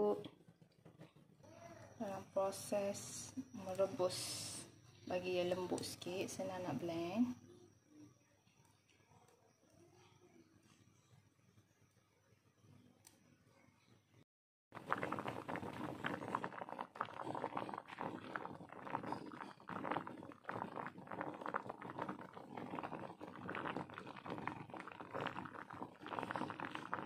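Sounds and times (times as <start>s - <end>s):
pot boiling hard: 14.7s - 27.0s.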